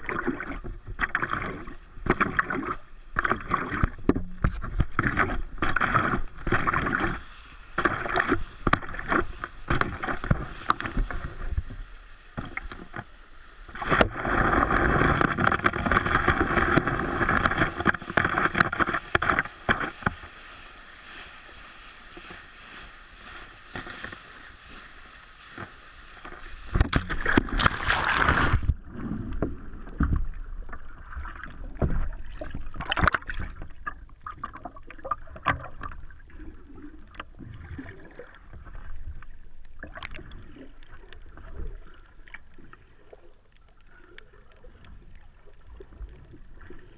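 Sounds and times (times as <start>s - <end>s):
sea water splashing and rushing: 0.0s - 43.3s.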